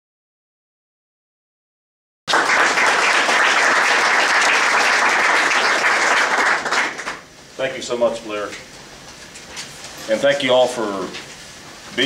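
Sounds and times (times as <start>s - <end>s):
audience applauding: 2.3s - 7.3s.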